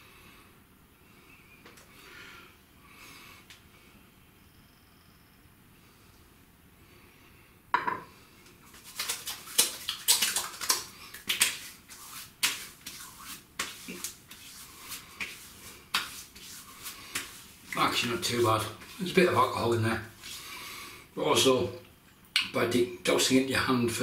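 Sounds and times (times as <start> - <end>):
hands slapping wet skin: 8.7 - 18.1.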